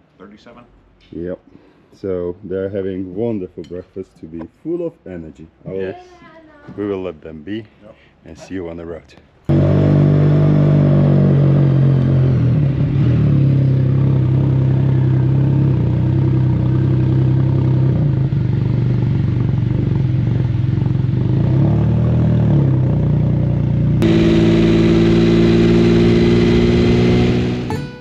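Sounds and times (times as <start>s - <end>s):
motorcycle engine cruising: 9.5s - 28.0s.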